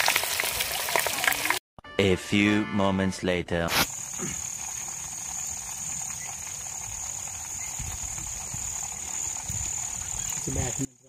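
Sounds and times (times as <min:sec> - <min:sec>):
crickets chirring: 0:03.8 - 0:11.0.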